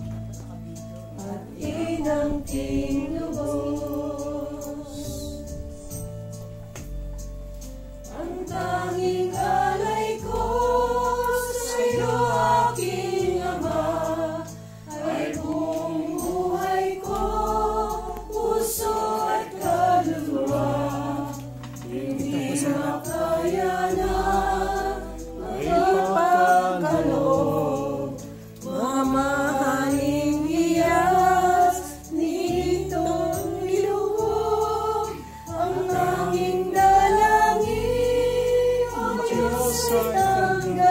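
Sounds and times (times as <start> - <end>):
group singing a hymn: 1.1 - 6.1, 8.0 - 40.9
accompaniment chords: 15.0 - 33.3.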